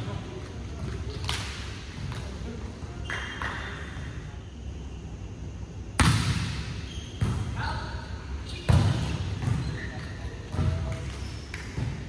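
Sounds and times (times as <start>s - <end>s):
background court noise: 0.0s - 12.0s
volleyball impact slap: 6.0s - 6.6s.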